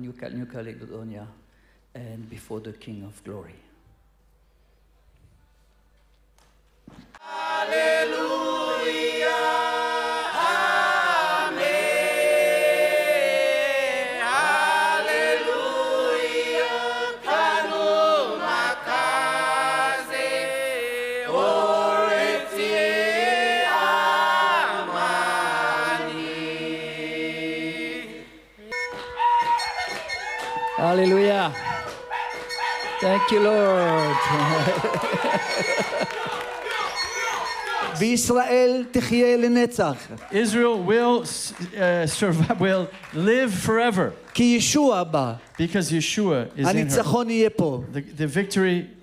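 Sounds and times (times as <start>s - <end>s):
group chanting a hymn: 7.2s - 28.8s.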